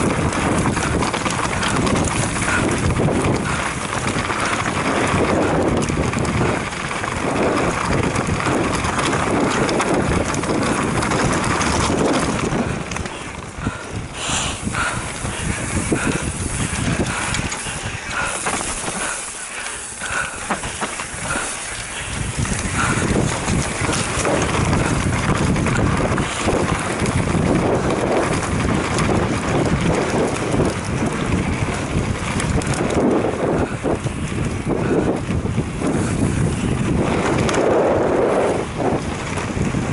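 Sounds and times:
bike rattling over stones: 0:00.0 - 0:39.9
wind rushing over microphone: 0:00.0 - 0:39.9
tyres crunching on gravel: 0:15.2 - 0:31.1.

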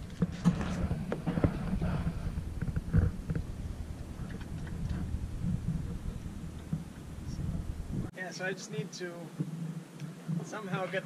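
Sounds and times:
steady low rumble: 0:00.0 - 0:08.1.

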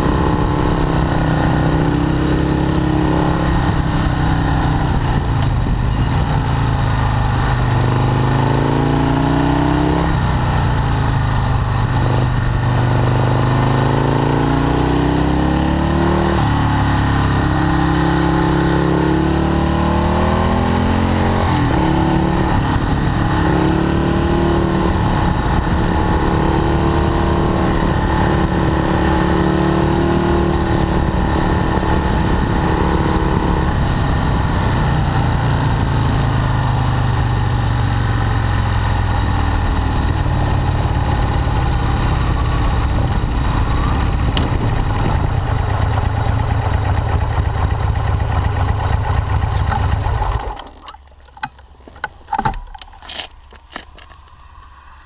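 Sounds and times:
motorcycle engine running: 0:00.0 - 0:50.7
road and wind noise: 0:00.0 - 0:55.0
clicks and knocks: 0:50.5 - 0:54.2.

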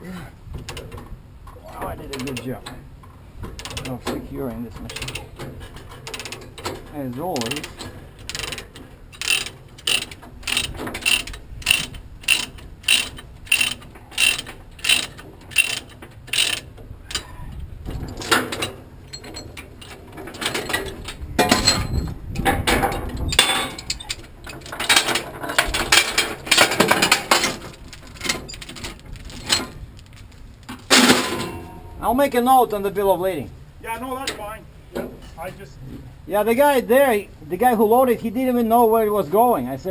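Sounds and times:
chains and hooks rattling: 0:04.8 - 0:17.3, 0:18.0 - 0:31.7
ratchet pawl clicking: 0:07.4 - 0:17.2.

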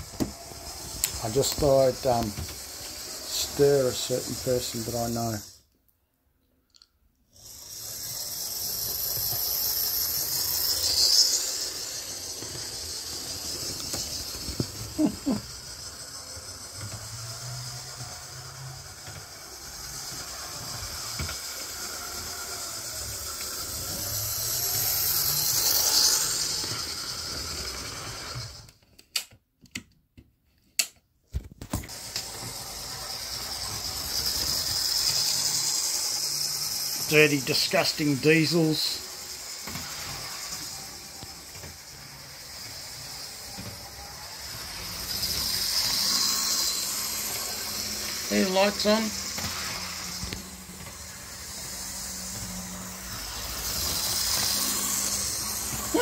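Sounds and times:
wheels rattling on rails: 0:00.0 - 0:05.4
model train motor whirring: 0:00.0 - 0:05.8, 0:07.2 - 0:29.3, 0:31.6 - 0:56.0.

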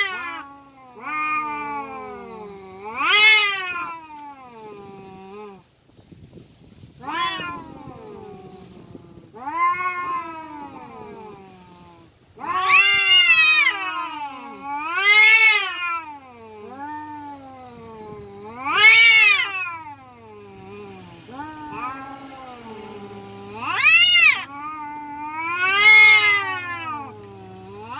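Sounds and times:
cats yowling: 0:00.0 - 0:05.6, 0:06.9 - 0:27.9.

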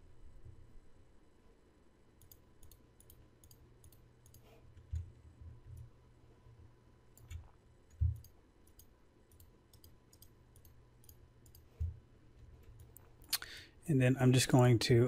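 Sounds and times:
mouse clicking: 0:02.2 - 0:05.1, 0:07.1 - 0:12.0, 0:12.6 - 0:13.4.

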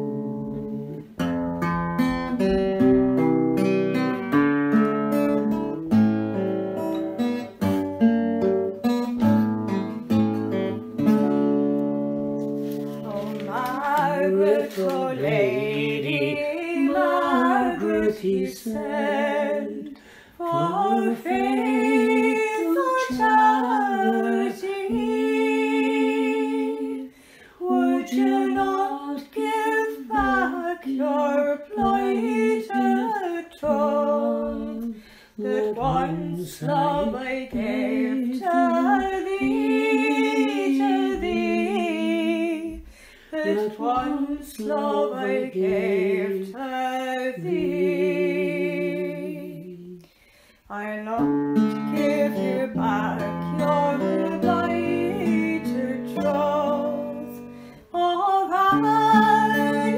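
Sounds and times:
plucked string instrument: 0:00.0 - 0:19.8, 0:51.1 - 0:59.9
person singing unaccompanied: 0:12.7 - 0:59.9.

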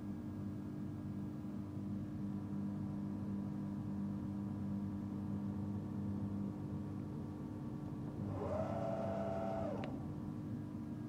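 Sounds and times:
milling machine electrical hum: 0:00.0 - 0:11.0
drive motor whining: 0:08.2 - 0:10.1.

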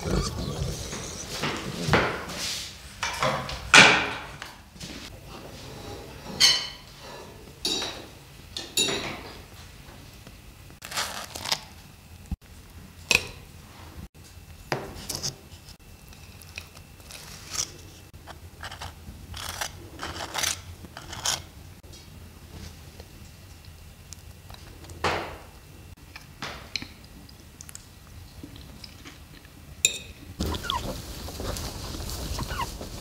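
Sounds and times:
cutlery clinking on plates: 0:06.3 - 0:06.9, 0:07.6 - 0:09.3.

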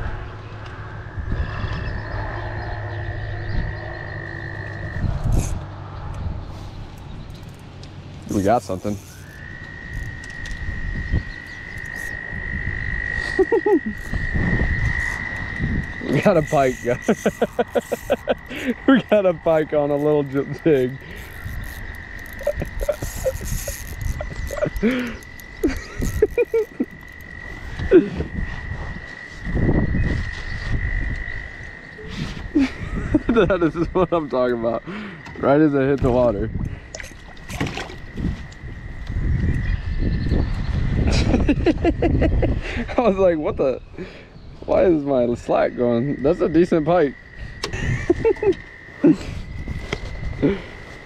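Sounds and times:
low croaking calls: 0:00.0 - 0:51.0
frog trilling: 0:00.7 - 0:05.7, 0:08.3 - 0:34.1
short lower frog calls: 0:01.2 - 0:05.6, 0:08.3 - 0:28.5
fish splashing and thrashing in water: 0:36.8 - 0:38.8.

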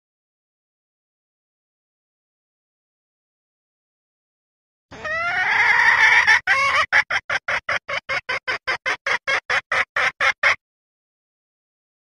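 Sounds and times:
hen clucking rapidly: 0:04.9 - 0:10.6
hen long drawn-out call: 0:04.9 - 0:10.6.

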